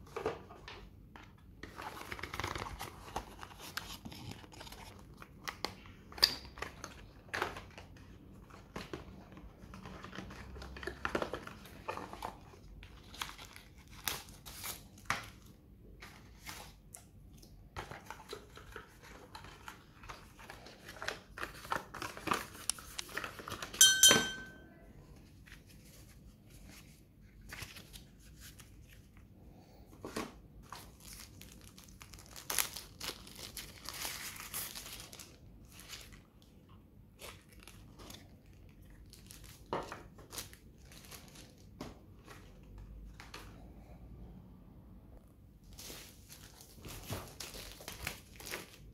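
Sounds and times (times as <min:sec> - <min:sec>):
paper and cardboard rustling: 0:01.6 - 0:05.2, 0:17.8 - 0:23.8
short ringing knock: 0:23.8 - 0:24.6.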